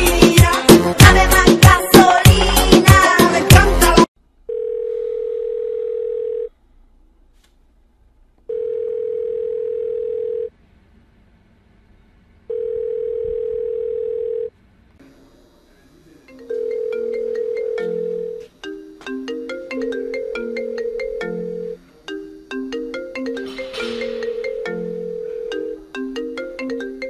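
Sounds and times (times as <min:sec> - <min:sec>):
telephone ringback tone: 0:04.5 - 0:06.5, 0:08.5 - 0:10.5, 0:12.5 - 0:14.5, 0:16.3 - 0:27.0
marimba-like phone ringtone: 0:16.3 - 0:27.0.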